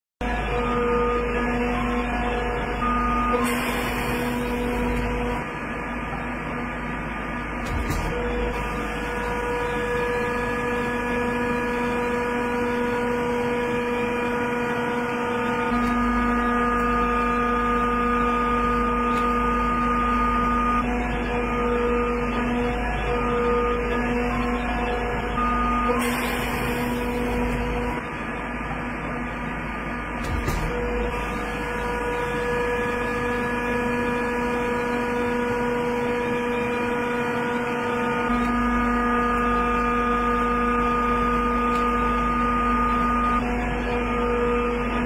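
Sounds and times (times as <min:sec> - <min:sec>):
press machine hum: 0:00.2 - 0:45.0
whining tones: 0:00.2 - 0:45.0.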